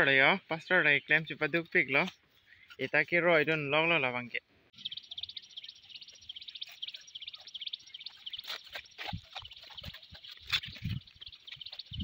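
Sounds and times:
high fast-pulsing animal chirring: 4.8s - 12.0s
footsteps: 6.6s - 12.0s.

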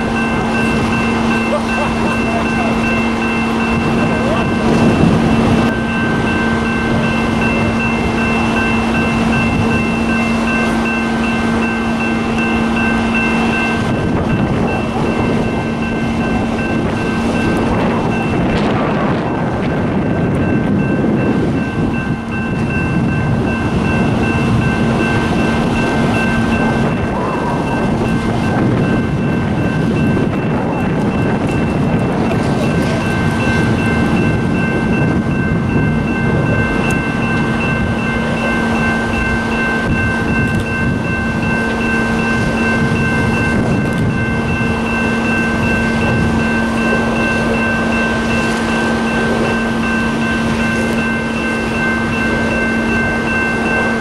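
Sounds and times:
diesel engine drone with whine: 0.0s - 54.0s.

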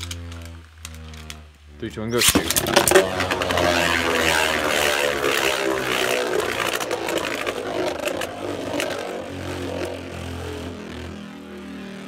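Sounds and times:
spinning tops whirring and scraping: 0.0s - 12.0s
spinning tops clicking together: 2.2s - 11.3s.

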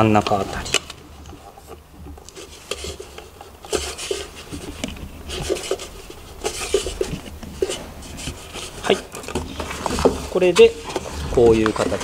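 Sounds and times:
hands rubbing on wood: 1.2s - 12.0s.

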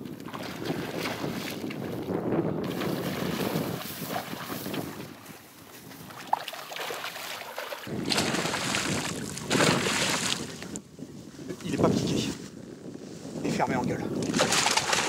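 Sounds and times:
wind buffeting microphone: 0.0s - 6.4s, 7.8s - 15.0s
fish splashing in water: 6.1s - 10.5s, 14.3s - 15.0s.

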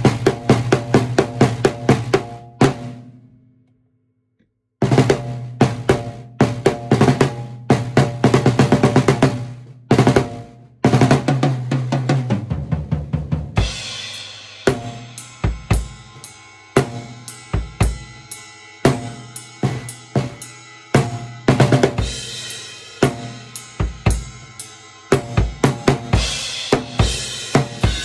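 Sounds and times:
drum kit playing a beat: 0.0s - 3.2s, 4.8s - 28.0s.

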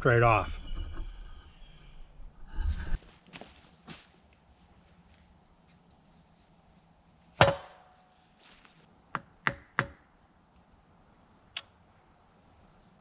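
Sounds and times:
hammer striking steel: 7.4s - 7.9s.

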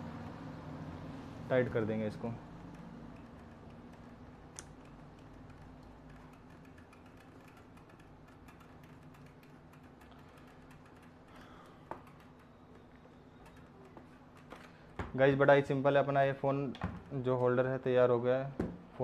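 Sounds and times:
small plastic clicks: 2.6s - 14.8s.

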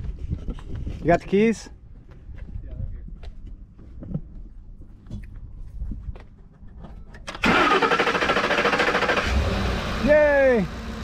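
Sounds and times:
truck engine starting: 7.2s - 11.0s.

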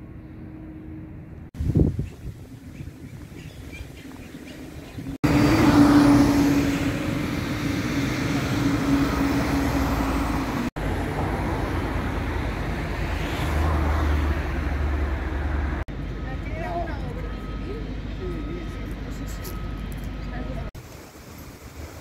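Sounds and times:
vehicles passing on road: 0.0s - 20.8s
steady engine drone: 5.2s - 13.5s.

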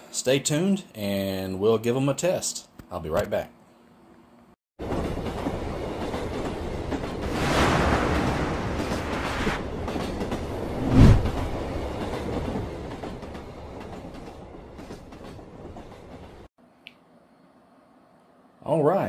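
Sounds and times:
passing train: 4.8s - 16.5s.

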